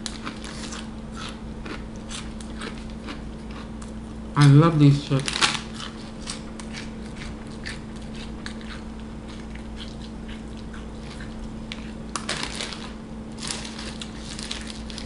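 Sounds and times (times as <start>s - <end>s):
crunchy chips being chewed: 0.0s - 15.0s
plastic chip bag rustling: 5.0s - 6.2s, 12.1s - 15.0s.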